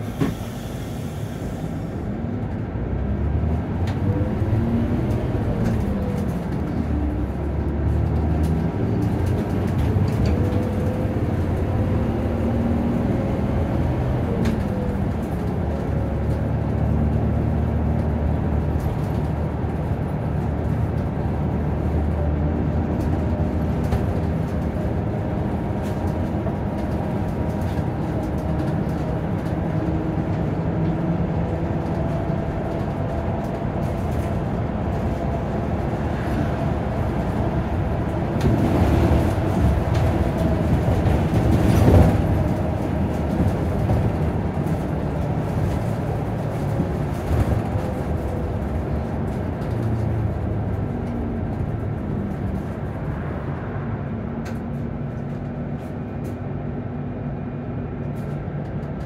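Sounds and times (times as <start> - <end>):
bus diesel engine rumble: 0.0 - 59.0.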